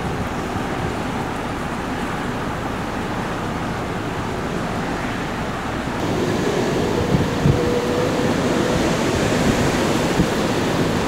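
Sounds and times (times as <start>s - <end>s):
wind rumble on microphone: 0.0s - 11.0s
blizzard wind rushing: 4.2s - 11.0s.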